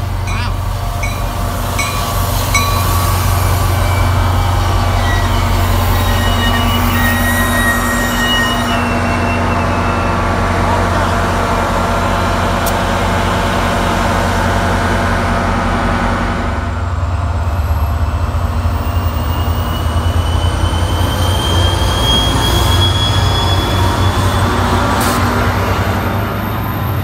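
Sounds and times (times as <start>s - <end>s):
diesel locomotive engine rumbling: 0.0s - 27.0s.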